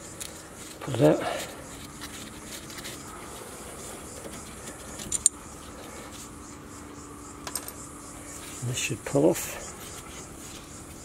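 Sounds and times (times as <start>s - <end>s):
faint steady hum: 0.0s - 11.0s
handling of metal parts: 4.1s - 5.4s.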